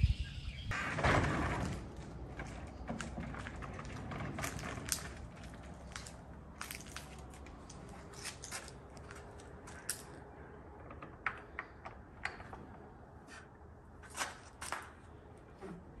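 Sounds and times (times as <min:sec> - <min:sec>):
low steady truck rumble: 0:01.4 - 0:14.2
small handling clicks and crinkles: 0:03.0 - 0:12.6.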